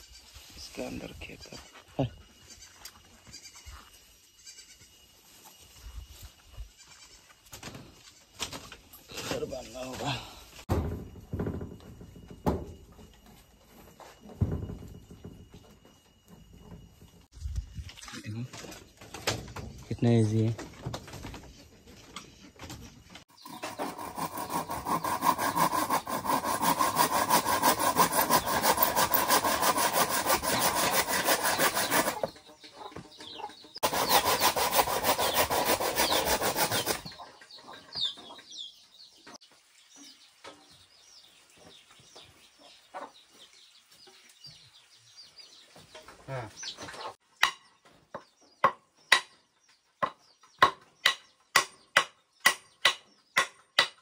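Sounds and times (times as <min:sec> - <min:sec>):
saw cutting wood: 0:23.3 - 0:32.4, 0:33.8 - 0:37.2.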